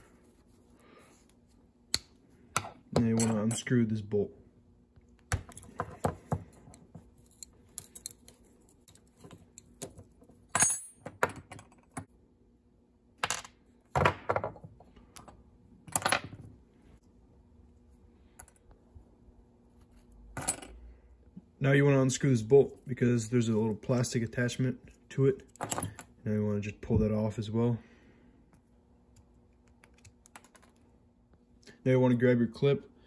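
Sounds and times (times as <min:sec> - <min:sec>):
metal parts clicking and clinking: 0:05.4 - 0:12.0, 0:25.3 - 0:26.1.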